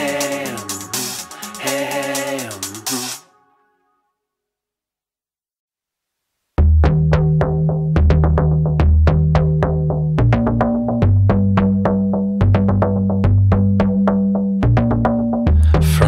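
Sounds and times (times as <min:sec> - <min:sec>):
drum machine beat: 0:00.0 - 0:03.2, 0:06.6 - 0:16.0
synth bass notes: 0:06.6 - 0:16.0.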